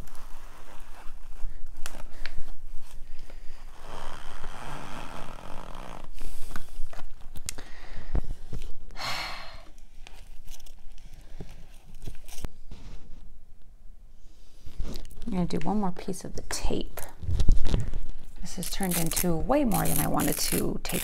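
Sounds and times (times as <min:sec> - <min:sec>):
tape being pulled or torn: 0:17.2 - 0:21.0
tape rustling and clicking: 0:17.2 - 0:21.0.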